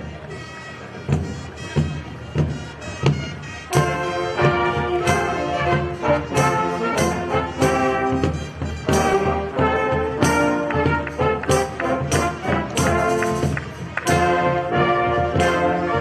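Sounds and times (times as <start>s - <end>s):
brass band chords: 0.1s - 16.0s
marching drum beat: 1.1s - 16.0s.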